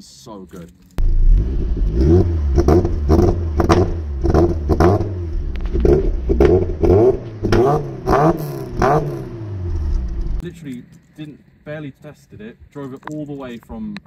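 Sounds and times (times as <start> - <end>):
car engine revving in blips: 1.0 - 10.8.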